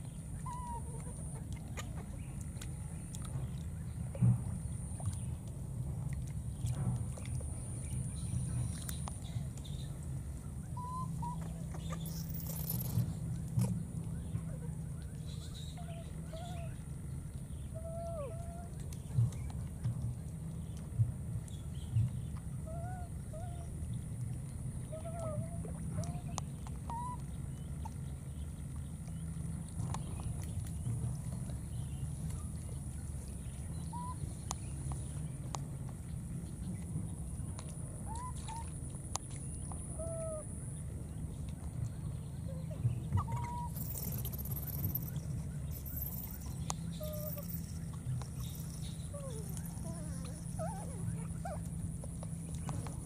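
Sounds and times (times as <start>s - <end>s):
steady low rumble: 0.0s - 53.0s
baby monkey coo calls: 43.1s - 47.6s.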